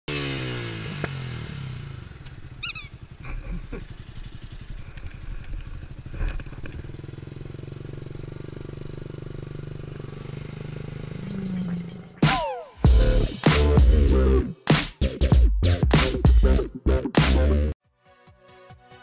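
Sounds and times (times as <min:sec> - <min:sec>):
motorcycle engine rumbling: 0:00.1 - 0:13.3
high squeak: 0:02.6 - 0:03.0.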